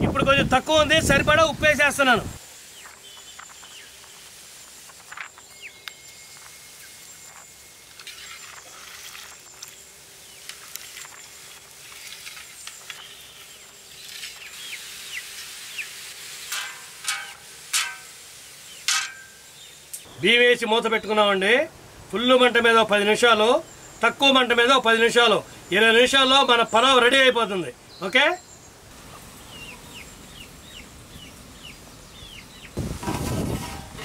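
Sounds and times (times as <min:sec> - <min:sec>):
boiling water hiss: 0:01.7 - 0:20.1
metal lid clanking on pot: 0:16.5 - 0:18.1, 0:18.9 - 0:19.4.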